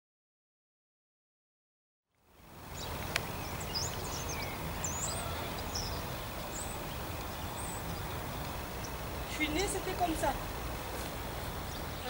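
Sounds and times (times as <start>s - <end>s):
small birds chirping: 2.6s - 12.0s.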